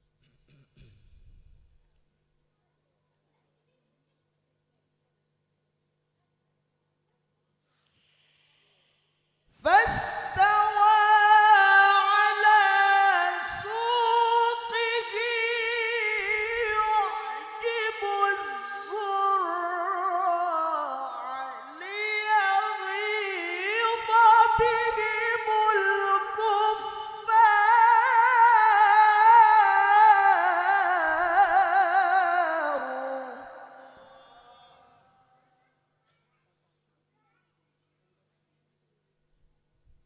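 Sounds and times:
man reciting melodically: 9.5s - 35.1s.

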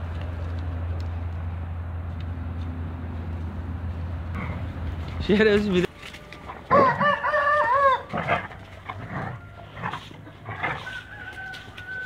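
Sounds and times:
rooster crowing: 6.7s - 12.0s.

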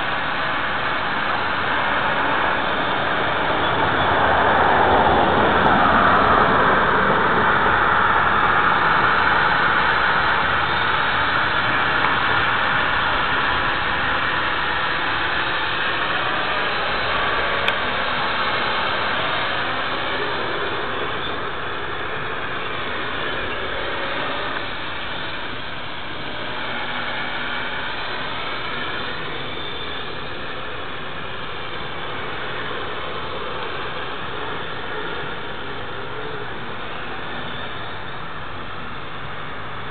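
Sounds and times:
drone propellers whirring: 0.0s - 39.9s.

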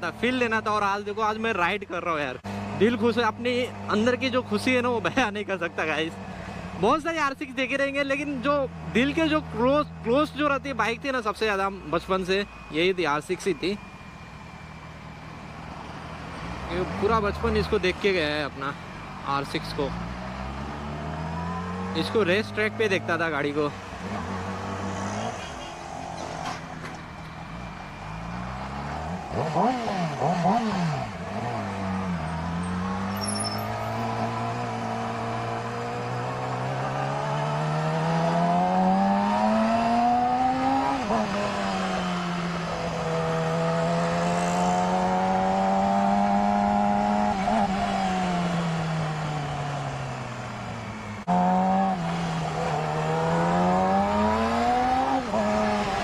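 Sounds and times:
motorcycle engine revving: 19.8s - 56.0s.

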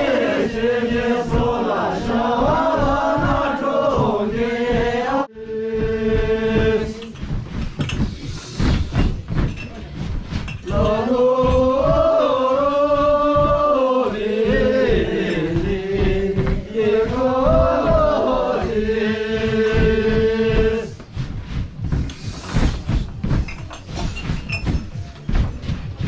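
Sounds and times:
group singing in unison: 0.0s - 8.8s, 10.6s - 21.6s
feet stamping on floor: 0.0s - 26.0s.

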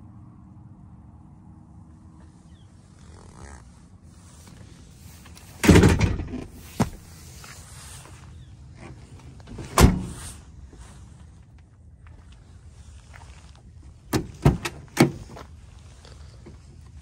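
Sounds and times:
truck door slamming shut: 5.6s - 7.0s, 9.7s - 10.2s, 14.1s - 15.2s.

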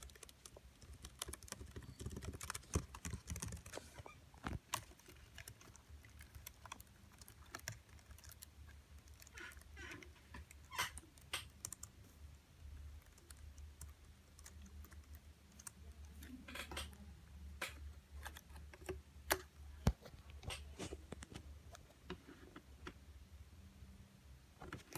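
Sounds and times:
faint low hum: 0.0s - 24.9s.

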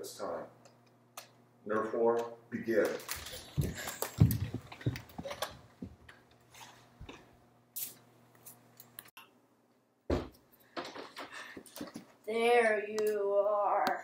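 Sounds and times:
footsteps thudding on floor: 3.6s - 6.0s, 10.1s - 10.4s.

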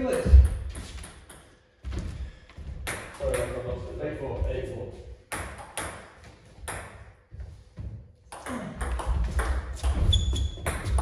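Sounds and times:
table tennis ball bouncing: 0.0s - 1.5s, 2.8s - 3.6s, 5.3s - 7.2s, 8.3s - 11.0s.

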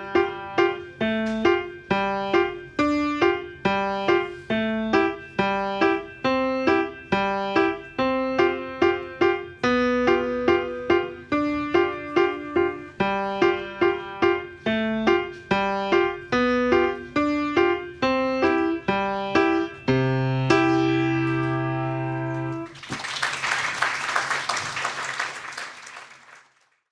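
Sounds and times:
piano playing a simple tune: 0.0s - 22.8s
audience applause: 22.7s - 26.8s.

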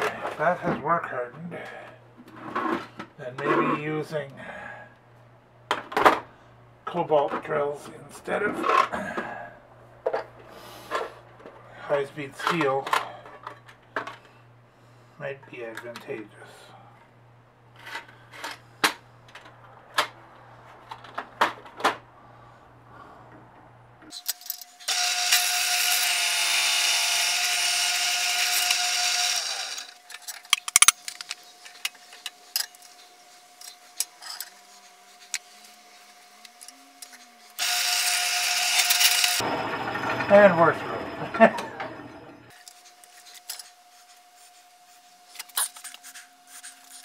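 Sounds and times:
drill bit cutting steel: 24.9s - 30.0s, 37.6s - 42.2s
drill press motor humming: 24.9s - 30.1s, 37.5s - 43.7s.

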